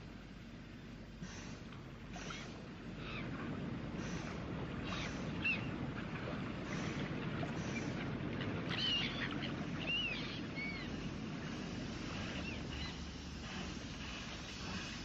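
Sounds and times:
low outdoor rumble: 0.0s - 15.0s
birds chirping: 4.8s - 5.8s, 6.8s - 11.1s.

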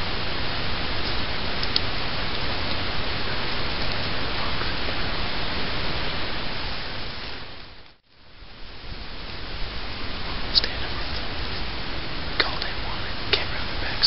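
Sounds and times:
wind buffeting microphone: 0.0s - 7.8s
faint ticks: 1.0s - 2.8s.

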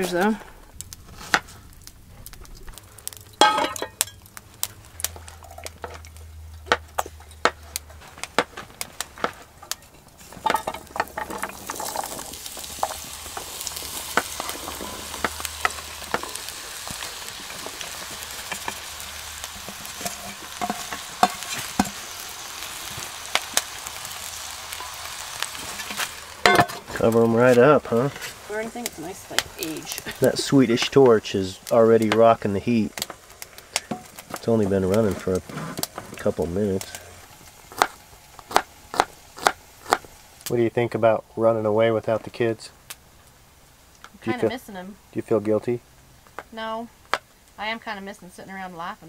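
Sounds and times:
vegetables sizzling in a pan: 0.0s - 49.0s
utensils scraping in a pan: 5.1s - 22.2s, 22.8s - 31.1s, 33.0s - 40.1s.

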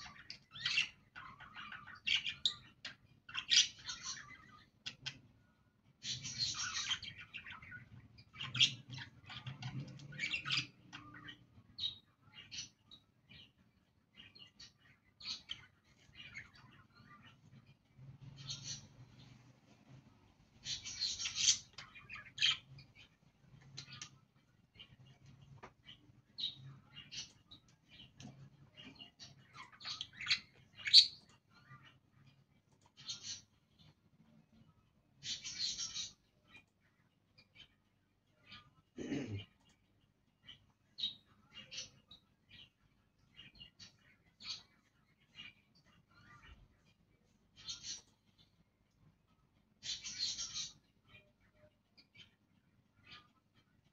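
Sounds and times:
budgerigars chirping: 0.0s - 5.2s, 6.0s - 13.4s, 20.6s - 24.2s, 28.8s - 31.7s, 35.2s - 36.2s, 49.8s - 50.9s
budgerigars chattering: 49.8s - 50.8s.

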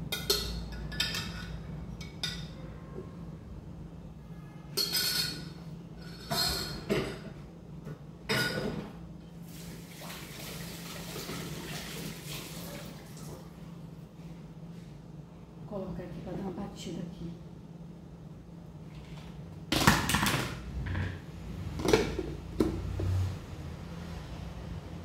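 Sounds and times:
dishes splashing and clinking: 0.1s - 2.6s
tap water running: 9.4s - 13.6s.

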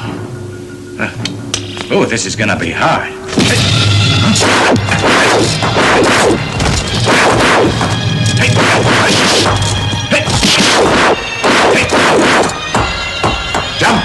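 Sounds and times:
background music: 0.0s - 14.0s
punch and hit impacts: 4.4s - 7.9s, 10.2s - 12.5s.

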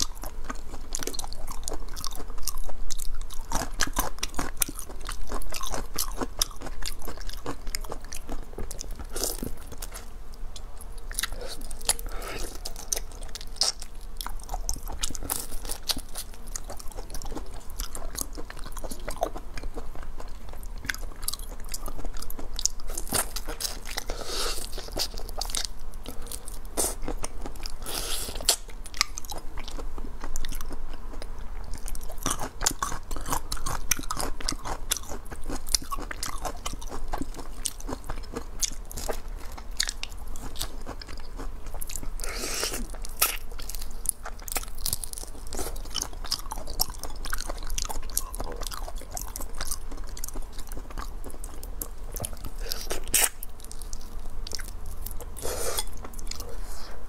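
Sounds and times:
chewing: 0.0s - 57.0s
crunching through shrimp shells: 31.8s - 56.5s.

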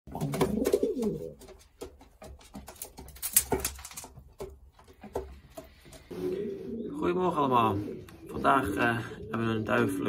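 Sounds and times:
pigeon cooing: 0.1s - 1.6s, 6.0s - 10.0s
birds clicking and scuffling: 0.1s - 6.8s.

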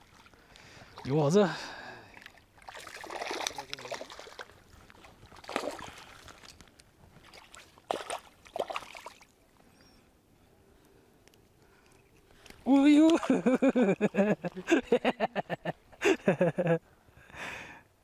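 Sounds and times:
water splashing and sloshing: 0.0s - 9.6s, 11.7s - 15.6s.

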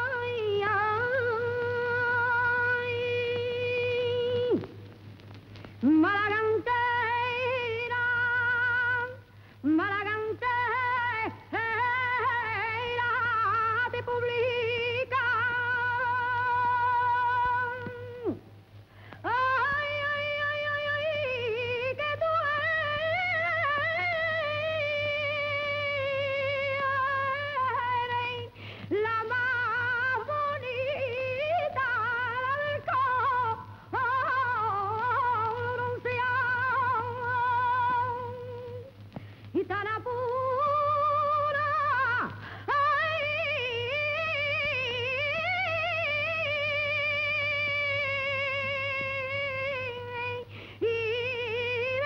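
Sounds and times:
person singing unaccompanied: 0.0s - 4.8s, 5.8s - 18.4s, 19.1s - 52.0s
steady low hum: 0.0s - 52.0s
singer breathing: 9.3s - 9.6s, 18.8s - 19.2s, 28.5s - 28.9s, 39.1s - 39.6s, 42.4s - 42.7s, 50.4s - 50.8s.

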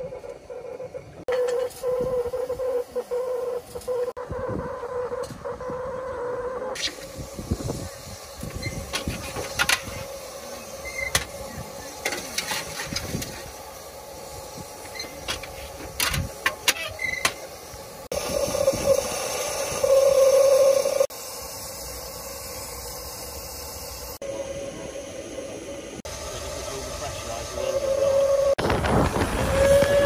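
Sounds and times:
steam hiss: 6.8s - 30.0s.

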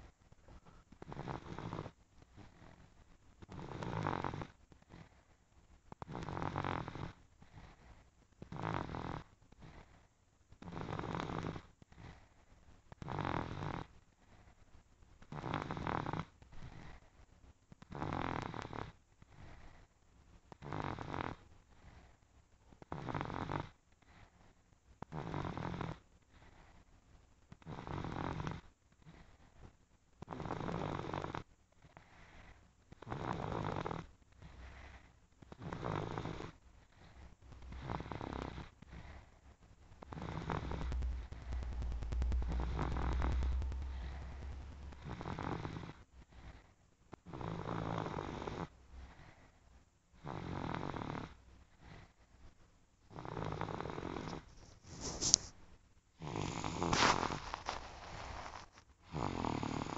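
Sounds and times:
rough snores: 1.0s - 1.9s, 3.5s - 4.5s, 6.0s - 7.2s, 8.5s - 9.9s, 10.6s - 11.7s, 13.0s - 13.9s, 15.3s - 16.3s, 17.9s - 19.0s, 20.6s - 21.4s, 22.9s - 23.7s, 25.1s - 26.0s, 35.5s - 36.6s, 37.7s - 39.2s, 40.0s - 40.9s, 50.2s - 51.4s, 53.1s - 54.5s, 56.2s - 59.9s.

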